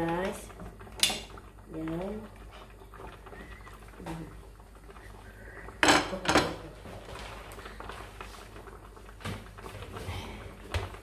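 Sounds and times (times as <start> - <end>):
cookware knocking: 5.8 - 6.6.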